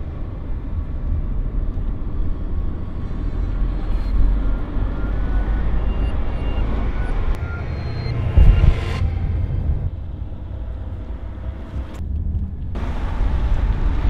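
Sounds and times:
car engine and road noise: 0.0 - 14.0.

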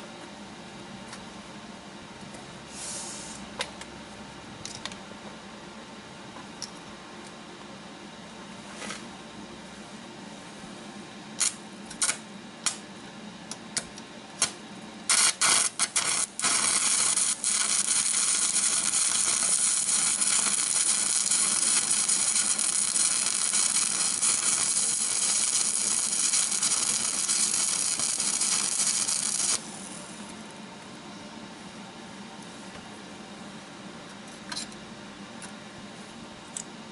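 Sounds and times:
arc welding hiss: 2.7 - 3.4, 11.4 - 12.8, 14.4 - 30.2.

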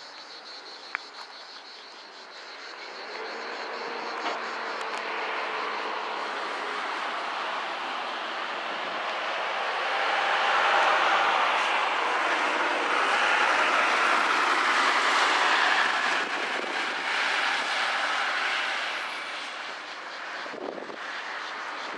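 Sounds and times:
road traffic passing: 0.0 - 21.9.

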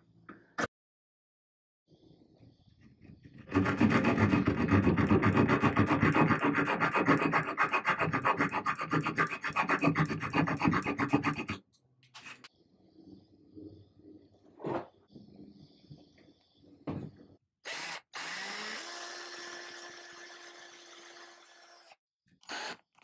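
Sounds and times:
small saw cutting wood: 3.0 - 11.6, 17.6 - 23.0.

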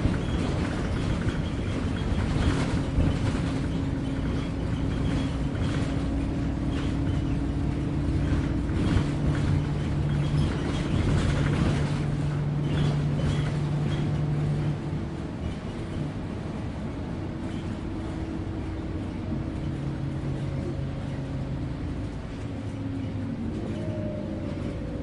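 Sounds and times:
knocks and rattles: 0.0 - 16.0
bus engine droning: 0.0 - 25.0
road noise: 0.0 - 25.0.

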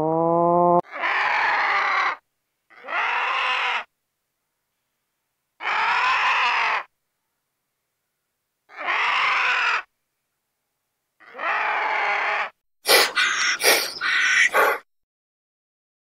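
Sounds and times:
animal's harsh raspy call: 0.8 - 3.9, 5.6 - 6.9, 8.7 - 9.9, 11.2 - 14.9.

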